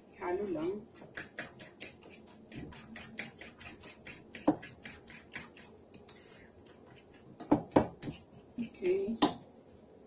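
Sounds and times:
utensil scraping a ceramic bowl: 0.3s - 8.8s
utensil knocking on bowl: 1.0s - 5.6s, 7.4s - 8.2s.

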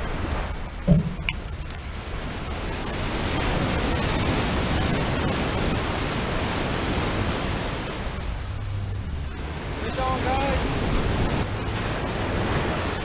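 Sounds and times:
waves breaking on a beach: 0.0s - 13.0s.

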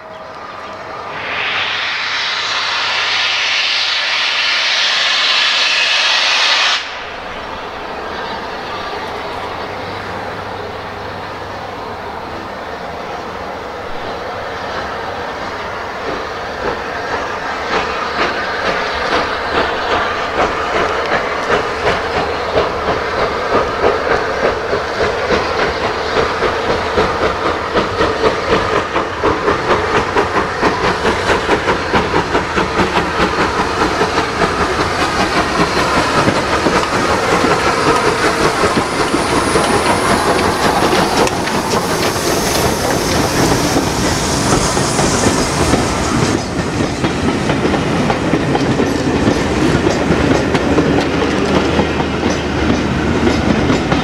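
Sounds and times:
steam hissing: 0.0s - 54.0s
wheels clicking over rail joints: 45.0s - 54.0s.

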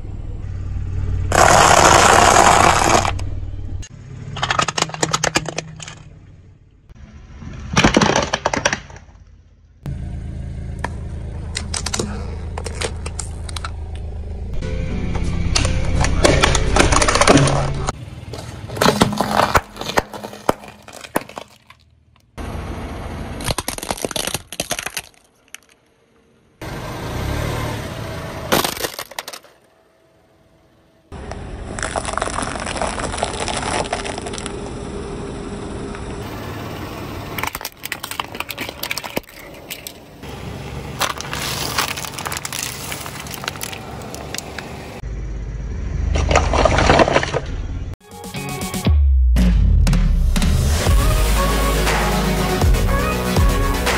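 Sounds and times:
tyre crushing dry spaghetti: 31.8s - 34.5s.

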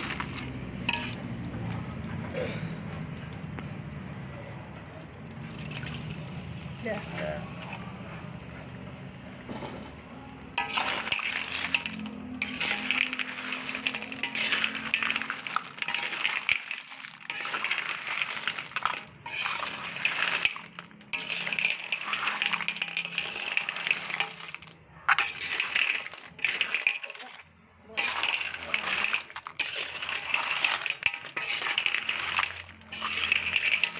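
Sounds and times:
shells clattering in metal wok: 0.0s - 1.2s, 10.5s - 33.9s.

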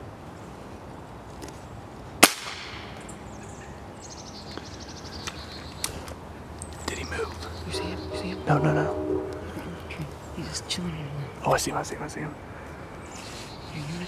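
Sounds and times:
high chirps: 7.5s - 10.4s.

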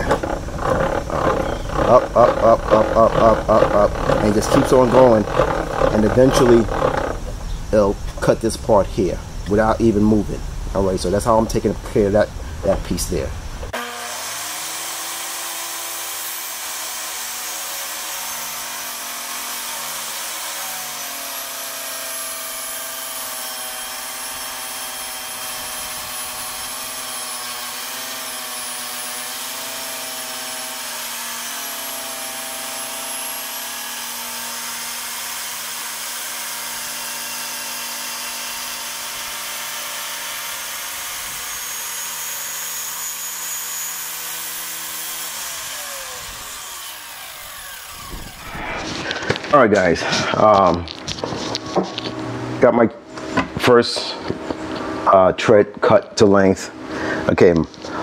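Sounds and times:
table saw cutting wood: 0.0s - 8.4s, 13.6s - 55.4s.

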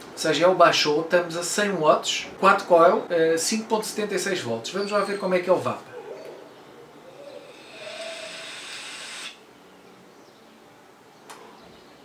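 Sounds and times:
air hissing through vape: 7.4s - 9.4s.

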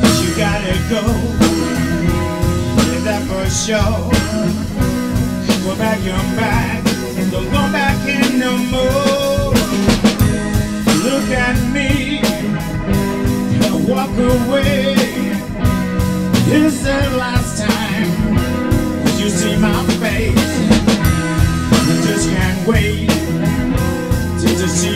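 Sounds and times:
drum kit beat: 0.0s - 24.9s
electric guitar: 0.0s - 24.9s.

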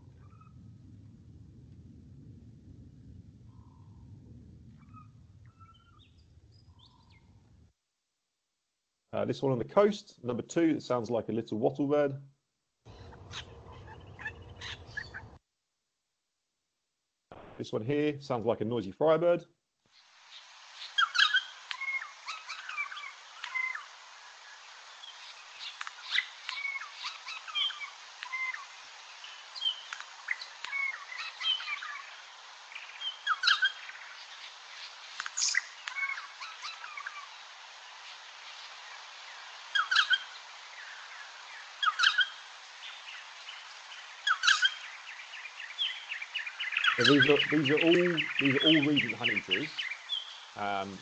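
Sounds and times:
recording hiss: 0.0s - 7.8s, 9.0s - 15.4s, 17.3s - 51.0s
bird singing squeaky notes: 45.8s - 51.0s.

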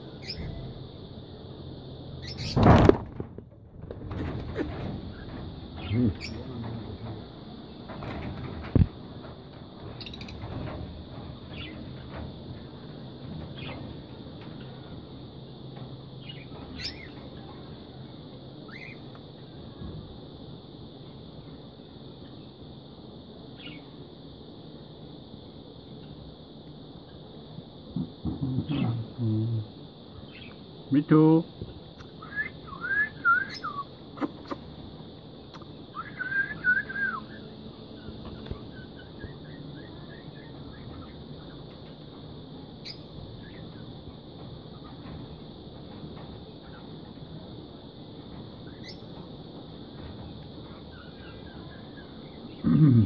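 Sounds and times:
low background noise: 0.0s - 53.0s
parakeets chirping: 0.1s - 1.0s, 2.2s - 2.9s, 4.1s - 7.1s, 9.9s - 10.5s, 16.2s - 17.2s, 33.5s - 34.8s, 42.8s - 44.0s, 48.6s - 49.2s
parakeet whistling: 32.2s - 33.9s, 36.0s - 37.4s.

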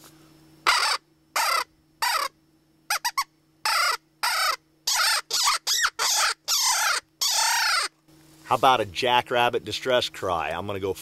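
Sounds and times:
predator call squeals: 0.6s - 8.0s.

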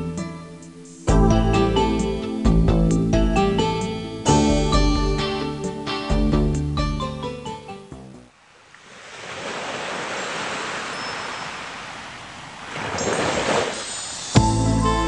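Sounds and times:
music: 0.0s - 8.3s, 14.4s - 15.0s
ocean waves washing in: 8.4s - 14.4s.

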